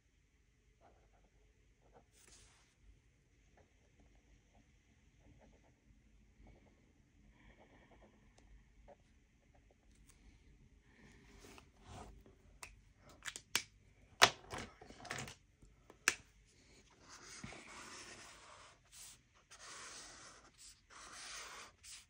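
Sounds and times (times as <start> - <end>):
marker scratching on paper: 17.0 - 22.0.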